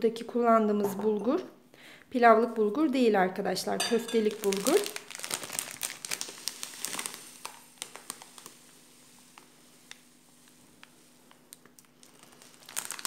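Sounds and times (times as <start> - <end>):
grain rustling and ticking: 4.3 - 13.0.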